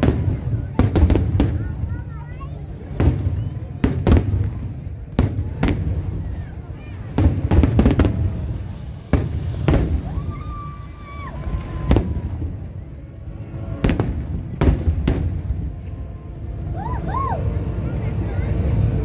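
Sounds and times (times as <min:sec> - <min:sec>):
constant low rumble: 0:00.0 - 0:19.0.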